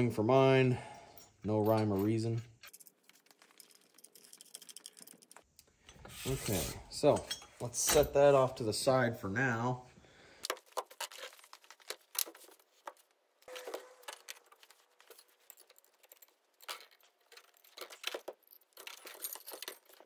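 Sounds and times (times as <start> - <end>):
metal clinking and rattling: 0.9 - 6.0, 10.5 - 20.0.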